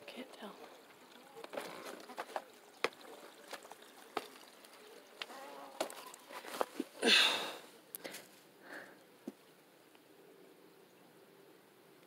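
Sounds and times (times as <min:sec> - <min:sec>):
crackling steps on dry garden litter: 0:00.7 - 0:07.0.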